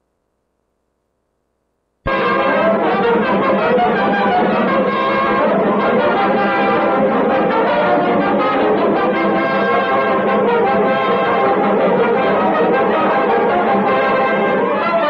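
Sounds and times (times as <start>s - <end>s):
orchestral brass chords: 2.1s - 15.0s.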